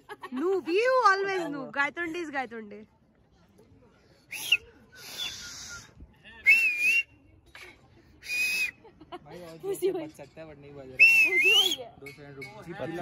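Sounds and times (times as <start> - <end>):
person whistling: 6.5 - 7.1, 8.2 - 8.7.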